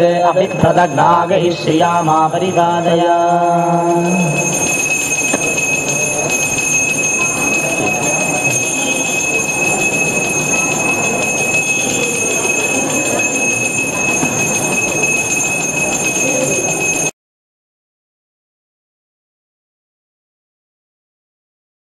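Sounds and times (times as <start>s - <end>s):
dense background murmur: 0.0s - 17.1s
temple bell ringing: 0.0s - 17.1s.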